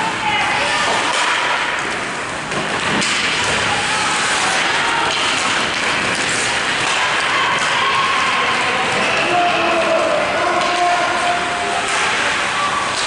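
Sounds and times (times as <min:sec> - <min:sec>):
spectators: 0:00.0 - 0:13.0
hockey stick and puck taps: 0:02.5 - 0:03.6, 0:04.5 - 0:07.9
skates on ice: 0:02.6 - 0:13.0.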